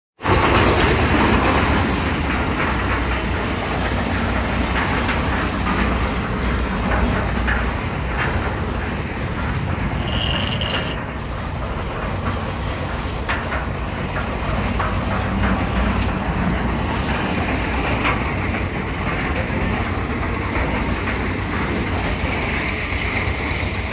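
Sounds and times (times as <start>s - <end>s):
road traffic: 0.2s - 23.9s
low engine rumble: 0.3s - 23.9s
short high tone: 10.0s - 11.0s.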